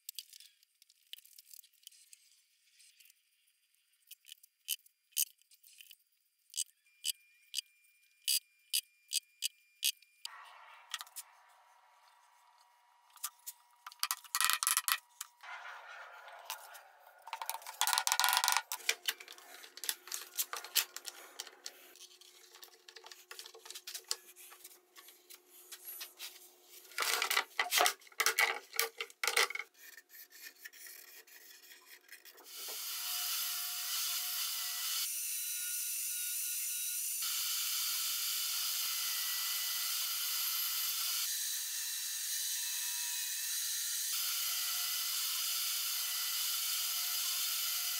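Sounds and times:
table saw cutting wood: 10.3 - 14.0, 15.4 - 22.3, 32.4 - 47.9
marker scraping on wood: 29.7 - 32.4.

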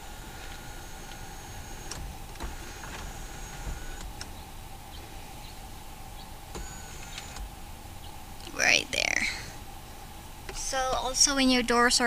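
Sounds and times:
electric motor whine: 0.0 - 4.5, 5.4 - 7.6
motor clicks: 0.2 - 4.4, 6.5 - 7.5.

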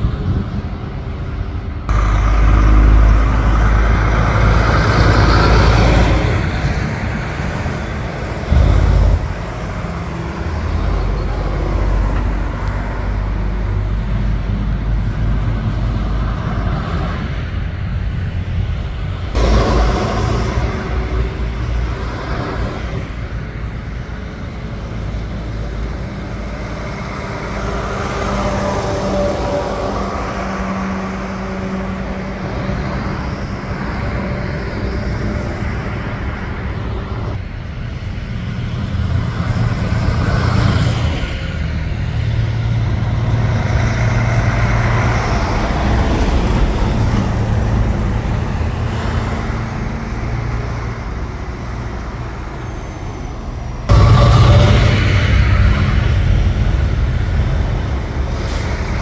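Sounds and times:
heavy trucks driving past: 0.0 - 59.0
traffic noise: 0.0 - 59.0.

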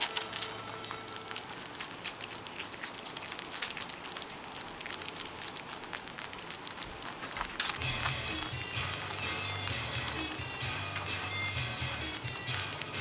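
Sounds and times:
rabbit crunching greens: 0.0 - 13.0.

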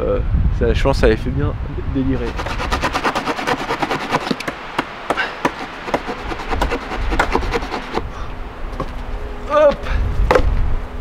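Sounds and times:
low wind rumble: 0.0 - 11.0
stick knocking against wood: 3.8 - 8.1.

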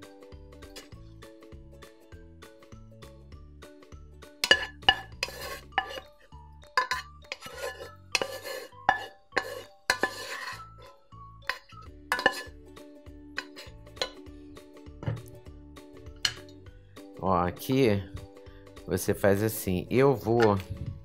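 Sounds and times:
wooden spoon knocking metal pot: 4.4 - 6.1, 6.7 - 10.5, 11.5 - 12.5, 13.4 - 14.2, 15.0 - 15.3
spoon scraping pot: 4.4 - 12.6, 13.4 - 14.2.

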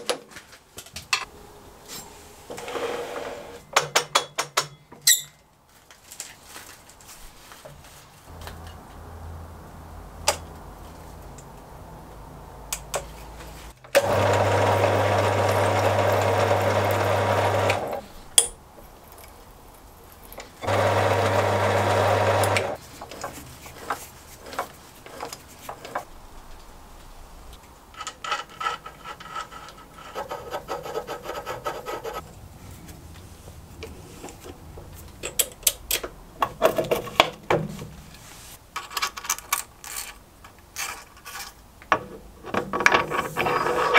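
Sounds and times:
faint whine: 1.2 - 3.8
metal lathe motor humming: 14.0 - 18.1, 20.6 - 22.8.

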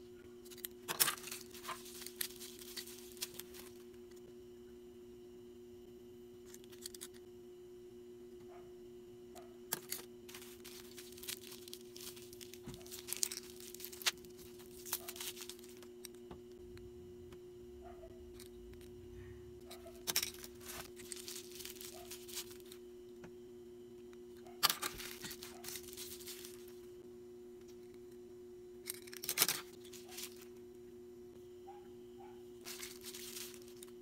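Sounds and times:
two-tone hum: 0.0 - 34.0
packaging crinkling and tearing: 0.9 - 3.8, 9.8 - 15.9, 19.9 - 22.8, 24.6 - 26.8, 29.1 - 30.5, 32.6 - 33.9.

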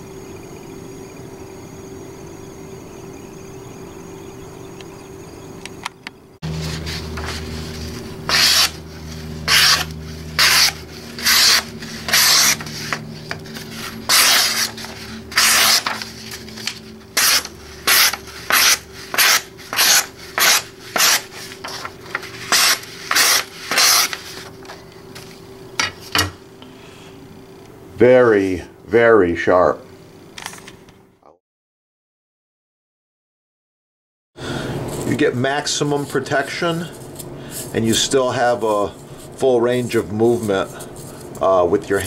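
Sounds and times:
knife slicing paper: 6.5 - 24.5.

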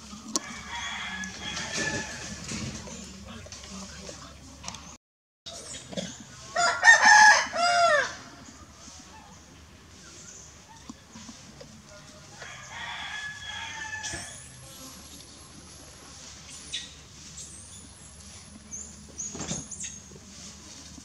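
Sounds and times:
rooster crowing: 0.3 - 2.6, 6.5 - 8.4, 12.4 - 14.6.

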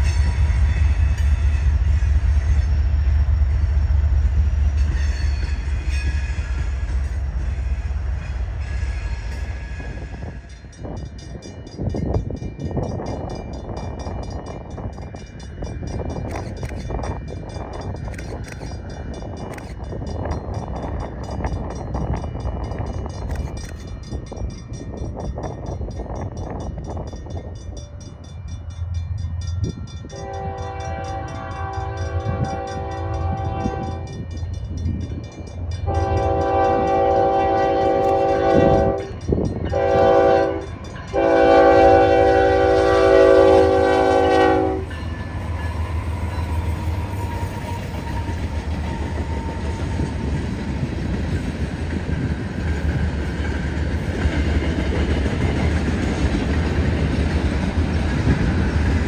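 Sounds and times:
diesel locomotive rumble: 0.0 - 59.0
locomotive horn blasts: 30.1 - 34.1, 35.8 - 45.0.

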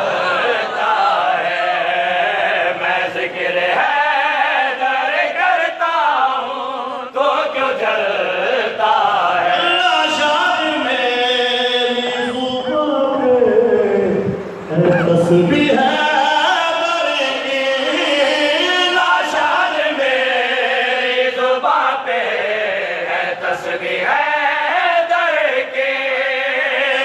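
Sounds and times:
group of men chanting: 0.0 - 12.4, 15.6 - 27.0
lead voice on a microphone: 6.0 - 27.0.

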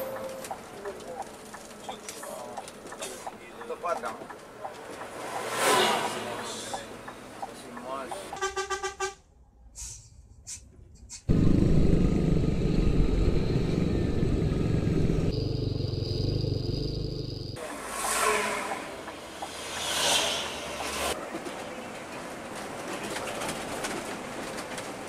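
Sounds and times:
quieter vehicle noise: 0.0 - 25.0
loud vehicle engine running: 11.3 - 17.8.

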